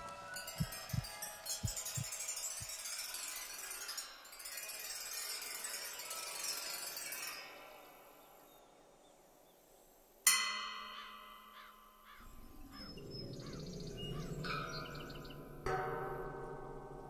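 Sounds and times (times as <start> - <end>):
bell-like chime ringing: 0.0 - 6.4
bird calling: 11.0 - 15.7
low rumble: 12.2 - 15.7.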